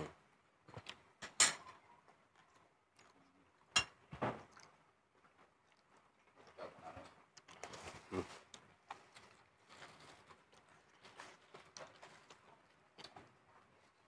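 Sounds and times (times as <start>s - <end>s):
dishes clattering: 1.2s - 1.8s.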